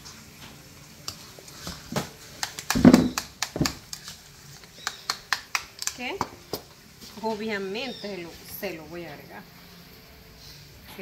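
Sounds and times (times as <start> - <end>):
utensils tapping bowl and board: 1.6 - 6.7.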